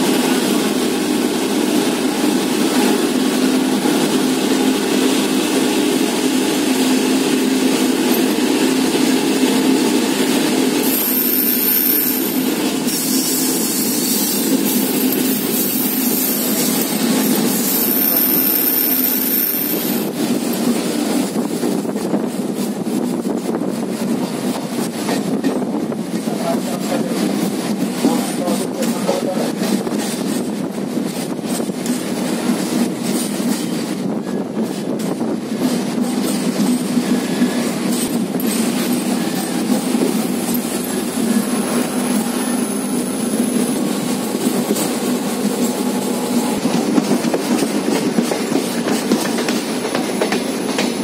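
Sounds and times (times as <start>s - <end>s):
train wheels rumbling: 0.0s - 51.0s.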